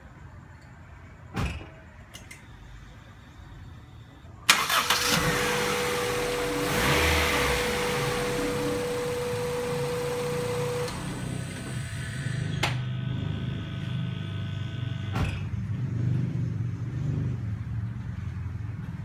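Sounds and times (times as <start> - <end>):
car engine idling: 4.5 - 15.9.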